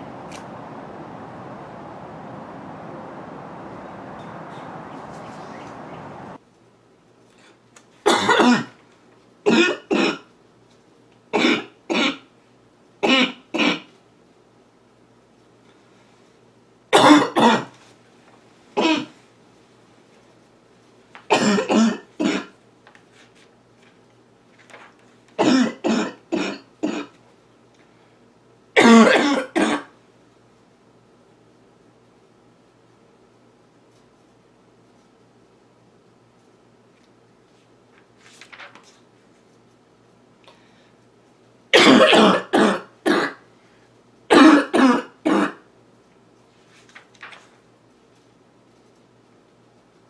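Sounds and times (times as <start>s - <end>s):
girl's barking cough: 8.1s - 8.8s, 9.5s - 10.3s, 11.4s - 12.2s, 17.0s - 17.7s, 21.3s - 22.5s, 25.4s - 27.1s, 28.8s - 29.9s, 41.8s - 43.4s, 44.3s - 45.6s.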